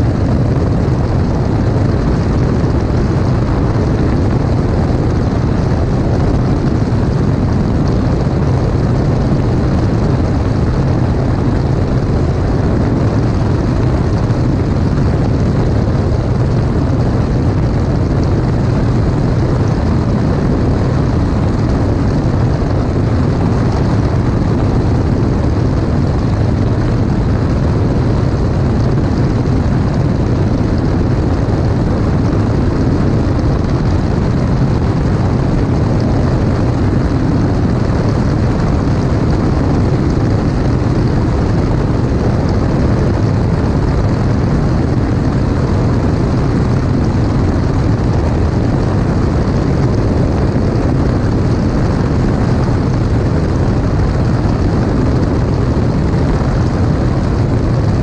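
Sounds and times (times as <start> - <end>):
propeller engine droning: 0.0 - 58.0
rushing airflow: 0.0 - 58.0.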